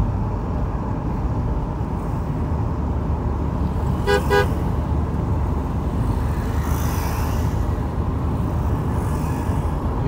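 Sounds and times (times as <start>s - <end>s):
low rumble of road travel: 0.0s - 10.0s
vehicle horn short beeps: 4.1s - 4.6s.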